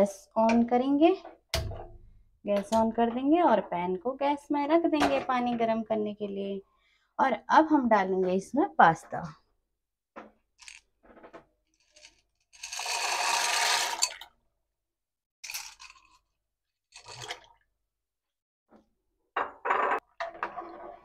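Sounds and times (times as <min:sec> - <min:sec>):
dry pasta poured into water: 0:12.6 - 0:14.3.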